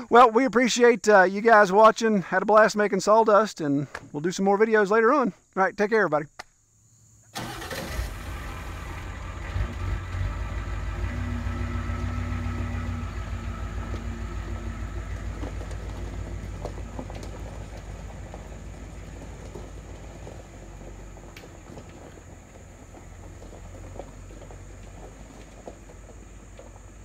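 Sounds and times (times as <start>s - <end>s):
dump truck engine rumbling: 7.4s - 27.0s.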